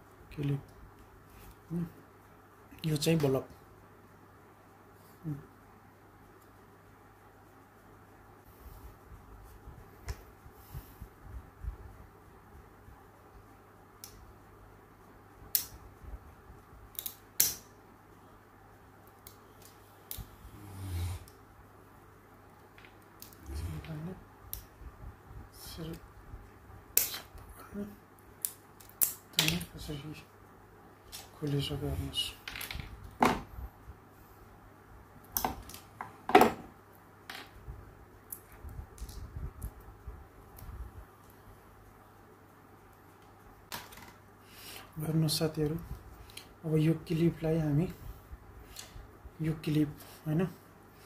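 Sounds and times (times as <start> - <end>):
low rumbling and ticks: 0.0 - 35.4, 36.8 - 44.4
faint low hum: 0.0 - 51.0
small hard objects clicking: 28.4 - 29.7.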